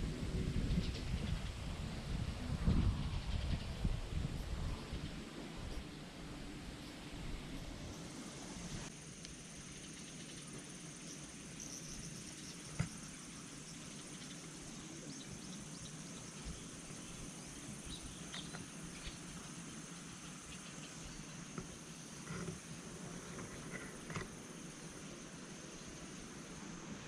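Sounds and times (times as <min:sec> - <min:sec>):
high-pitched insect drone: 0:07.6 - 0:27.0.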